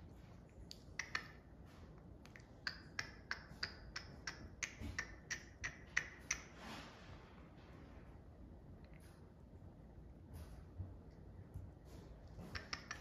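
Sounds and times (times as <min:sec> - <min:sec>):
sharp clicks: 0:00.7 - 0:01.4.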